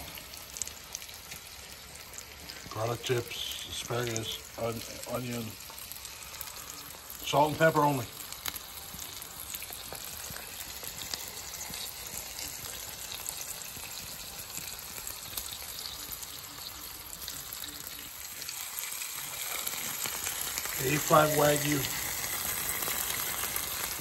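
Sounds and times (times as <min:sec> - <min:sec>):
steak sizzling on griddle: 0:00.0 - 0:24.0.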